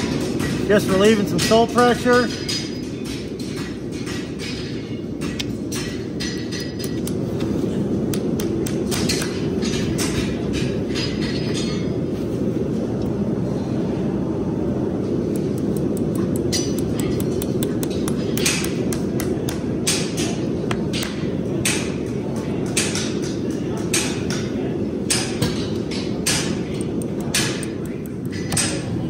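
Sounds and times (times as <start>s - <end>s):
steady low rumble: 2.3s - 22.6s
hammer tapping horseshoe nails: 15.4s - 20.3s.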